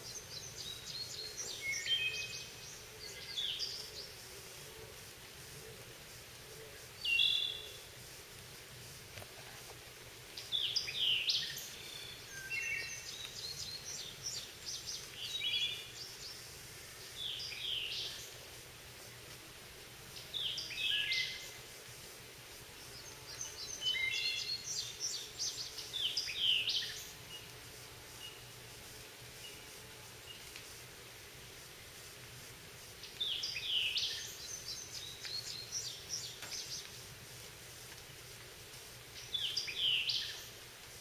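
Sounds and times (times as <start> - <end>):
birds singing: 0.0 - 4.2, 39.2 - 40.5
faint background noise: 0.0 - 41.0.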